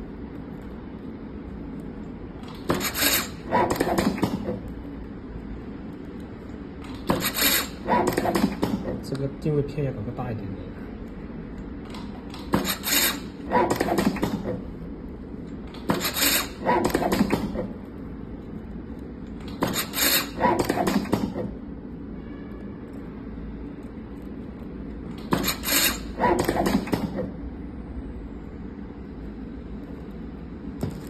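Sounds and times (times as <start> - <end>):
tape wrapping machine running: 0.0 - 9.3, 11.8 - 21.9, 22.9 - 27.4.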